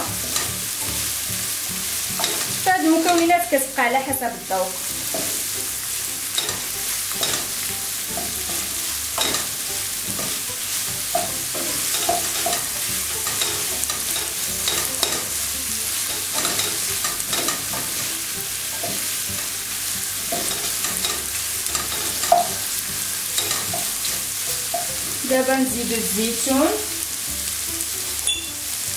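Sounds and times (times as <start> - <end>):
spatula scraping and tapping a pan: 0.0 - 1.0, 2.1 - 3.4, 4.9 - 25.2
meat and onion sizzling in a pan: 0.0 - 28.9.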